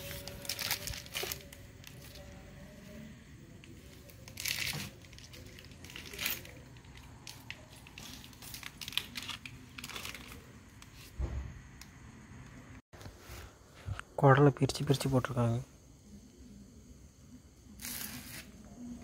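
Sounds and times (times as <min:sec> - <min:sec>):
plastic bag crinkling: 0:00.0 - 0:02.4, 0:04.0 - 0:10.6.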